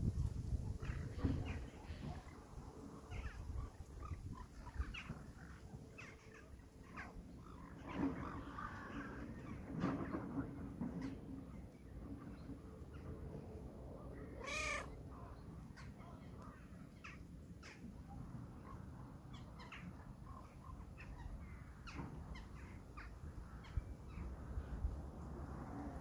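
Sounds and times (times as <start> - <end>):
faint high bird calls: 14.2 - 17.9
crow cawing: 14.4 - 14.9.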